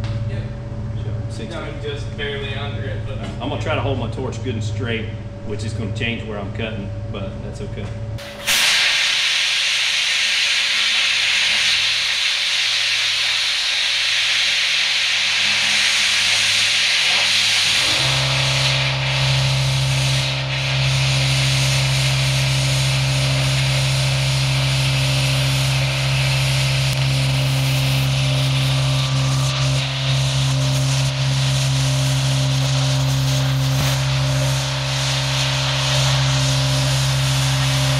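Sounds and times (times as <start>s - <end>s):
steady low hum: 0.0s - 37.9s
plasma cutter hissing: 8.2s - 37.9s.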